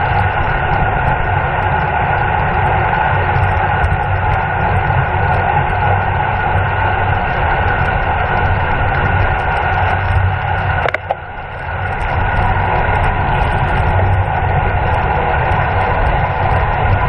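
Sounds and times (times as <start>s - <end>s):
wind roaring over microphone: 0.0s - 17.0s
sharp click: 10.8s - 11.2s.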